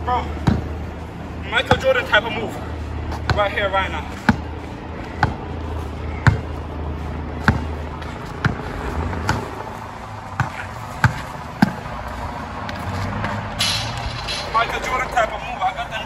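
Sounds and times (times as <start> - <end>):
basketball bouncing on hard court: 0.4 - 0.7, 3.1 - 3.6, 4.2 - 4.5, 5.2 - 5.5, 6.2 - 6.5, 7.4 - 9.6, 10.4 - 11.8.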